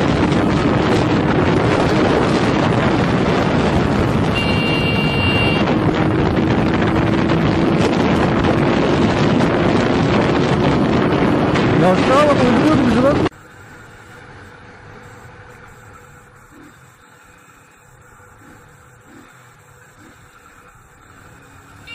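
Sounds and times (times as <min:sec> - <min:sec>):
wind noise on microphone: 0:00.0 - 0:13.3.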